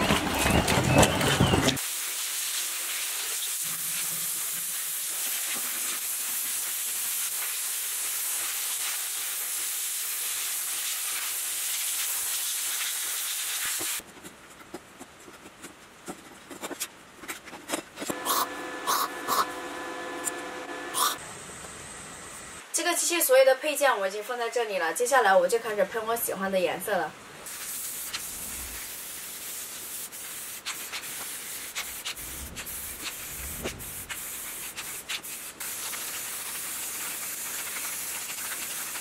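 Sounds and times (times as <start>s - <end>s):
sandblasting hose hiss: 1.8s - 14.0s, 27.5s - 39.0s
welding arc crackling: 18.1s - 21.2s, 27.5s - 30.0s, 30.7s - 39.0s.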